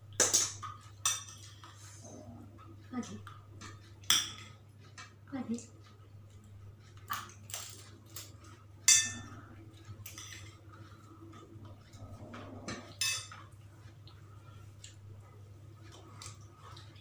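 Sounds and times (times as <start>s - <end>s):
steady low hum: 0.0s - 17.0s
cutlery clinking on plates: 0.2s - 1.8s, 7.1s - 10.6s, 12.6s - 13.5s.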